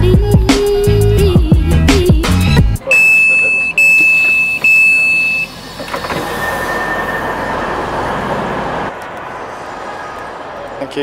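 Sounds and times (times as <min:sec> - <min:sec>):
train door warning beeps: 0:02.8 - 0:07.7
train and station noise: 0:02.8 - 0:11.0.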